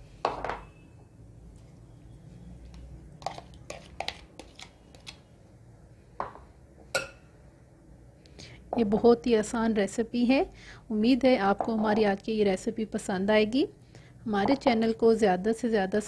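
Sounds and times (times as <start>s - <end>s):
plastic spatula scraping glass bowl: 3.2s - 5.1s.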